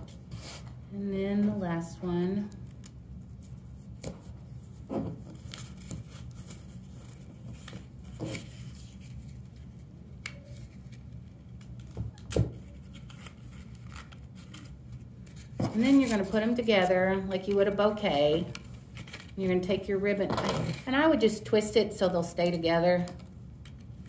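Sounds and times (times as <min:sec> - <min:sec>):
paper and tape rustling: 0:02.7 - 0:19.6.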